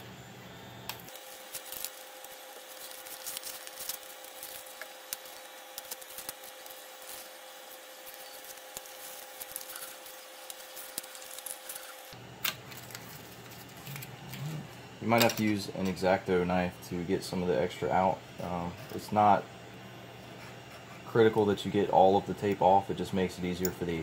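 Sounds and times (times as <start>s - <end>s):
tape being peeled and torn: 1.1s - 12.2s.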